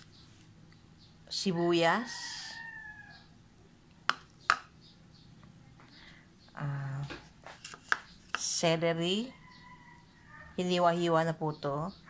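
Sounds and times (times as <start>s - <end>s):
ceramic bowls clicking: 4.1s - 4.7s.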